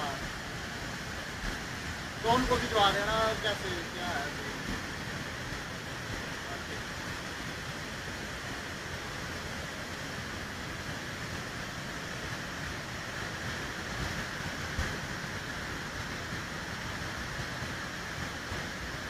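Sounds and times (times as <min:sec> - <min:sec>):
floodwater roaring: 0:00.0 - 0:19.0.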